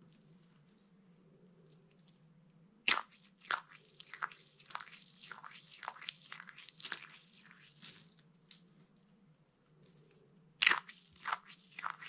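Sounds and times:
dry soap crunching: 0:02.9 - 0:08.1, 0:10.6 - 0:12.0.

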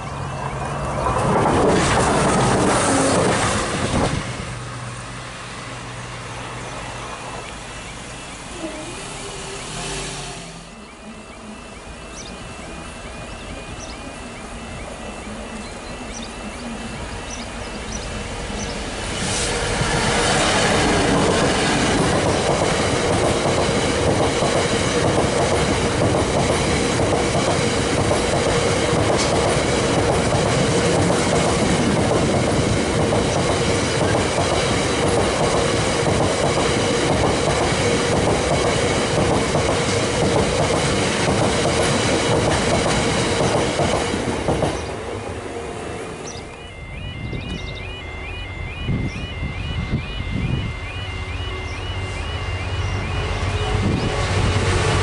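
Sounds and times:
diesel locomotive passing: 0:00.0 - 0:55.0
steady whine: 0:03.3 - 0:27.1, 0:45.0 - 0:55.0.

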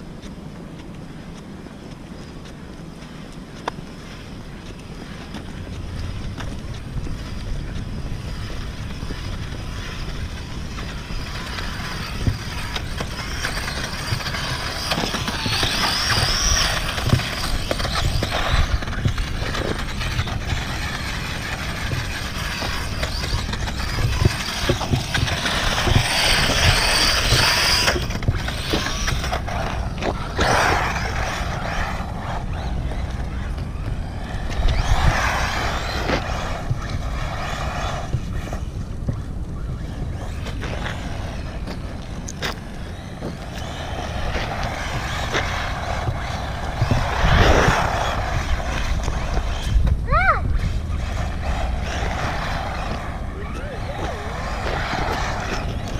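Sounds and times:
tyres ticking on pavement: 0:00.0 - 0:55.9
toy car motor whine: 0:07.2 - 0:55.9.

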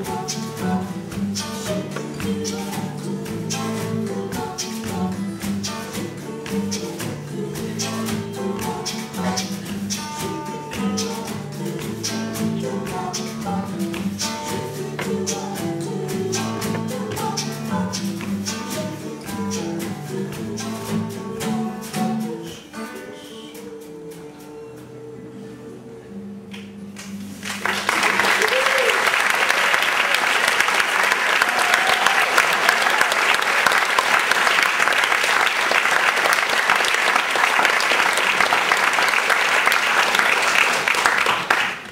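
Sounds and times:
sharp claps keeping a beat: 0:00.0 - 0:22.1, 0:26.6 - 0:41.9
strummed acoustic guitars: 0:00.0 - 0:28.3
audience applauding: 0:27.0 - 0:41.9.

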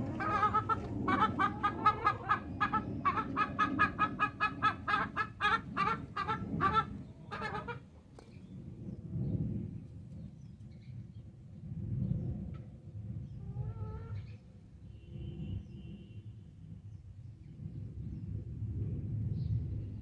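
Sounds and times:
chicken clucking: 0:00.0 - 0:07.8.

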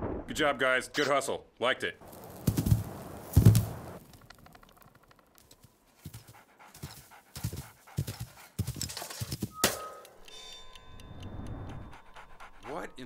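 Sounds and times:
cartoon character panting: 0:06.0 - 0:08.8.

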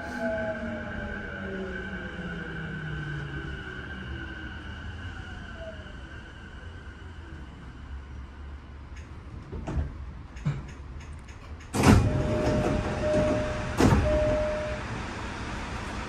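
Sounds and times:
train doors sliding open: 0:08.9 - 0:16.0
electric train inverter whine: 0:11.8 - 0:16.0.

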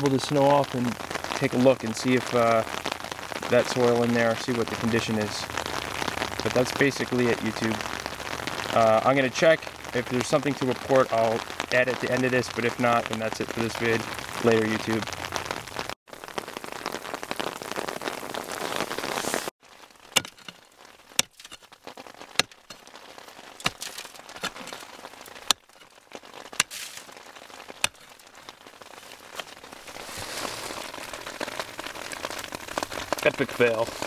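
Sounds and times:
rain on an umbrella: 0:00.0 - 0:34.0
pick striking frozen soil: 0:20.1 - 0:31.4.

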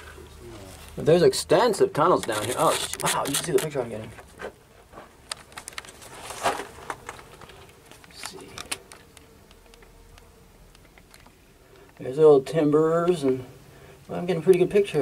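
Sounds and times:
camera handling clicks and rustles: 0:02.2 - 0:03.7, 0:05.2 - 0:09.9, 0:10.7 - 0:12.0.

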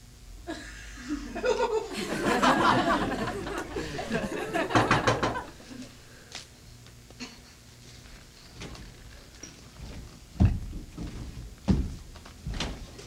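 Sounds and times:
audience laughing: 0:00.5 - 0:06.0.

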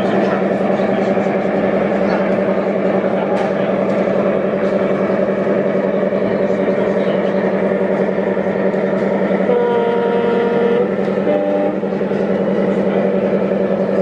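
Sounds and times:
model locomotive drone: 0:00.0 - 0:14.0
two-tone diesel horn: 0:09.5 - 0:12.0.

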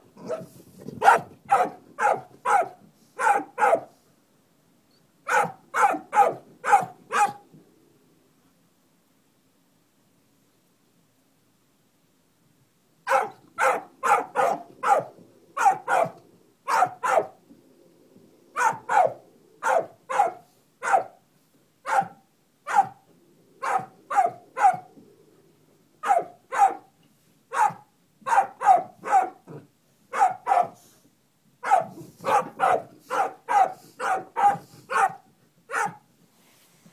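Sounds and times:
dog barking: 0:00.2 - 0:03.9, 0:05.2 - 0:07.4, 0:13.1 - 0:17.4, 0:18.6 - 0:21.2, 0:21.8 - 0:23.0, 0:23.6 - 0:24.9, 0:26.0 - 0:26.9, 0:27.5 - 0:29.5, 0:30.1 - 0:30.8, 0:31.6 - 0:36.0.

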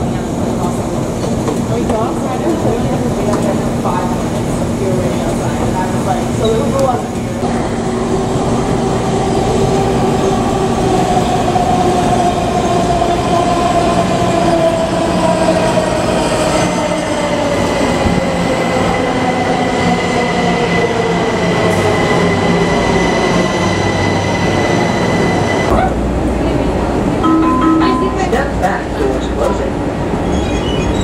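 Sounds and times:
subway train rumble and whine: 0:00.0 - 0:31.0
high squeal: 0:30.2 - 0:31.0.

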